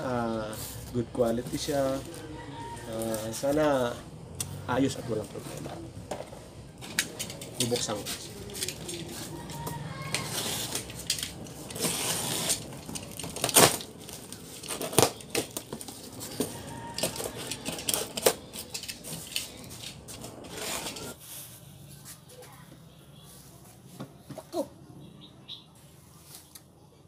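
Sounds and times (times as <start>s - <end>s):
cardboard scraping and tearing: 7.6s - 21.4s
knife slitting packing tape: 8.4s - 15.9s.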